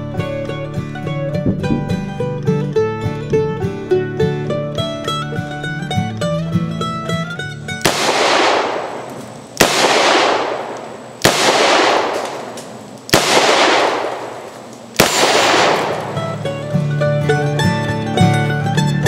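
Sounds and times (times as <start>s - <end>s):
revolver gunshots with echo: 7.8s - 16.9s.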